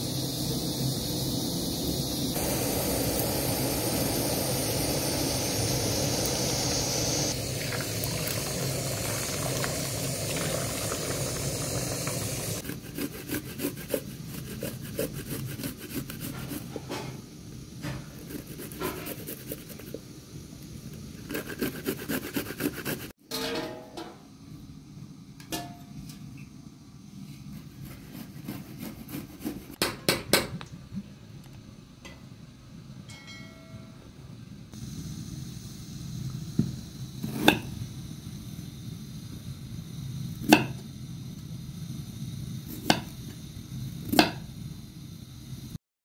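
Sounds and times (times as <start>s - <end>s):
water rushing over beans: 2.4s - 12.6s
garlic scraping on grater: 12.6s - 16.9s, 18.2s - 19.9s, 21.2s - 23.1s, 27.7s - 29.7s.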